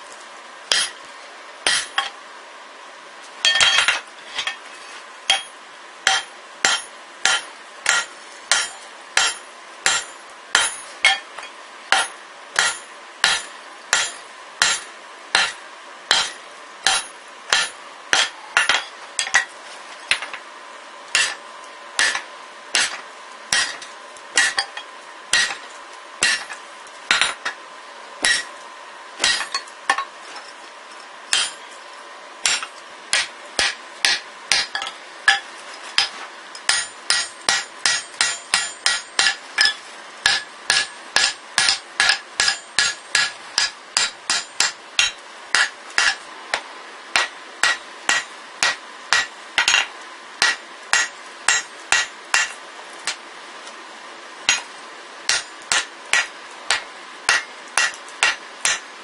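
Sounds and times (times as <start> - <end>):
hammer striking metal punch: 0.7 - 1.0, 1.6 - 2.1, 3.4 - 4.0, 5.3 - 11.3, 11.9 - 19.5, 21.2 - 21.4, 22.0 - 23.8, 24.4 - 25.6, 26.2 - 27.5, 28.2 - 28.5, 29.2 - 30.1, 31.3 - 31.6, 32.4 - 35.4, 36.7 - 46.2, 47.2 - 52.6, 55.3 - 58.8.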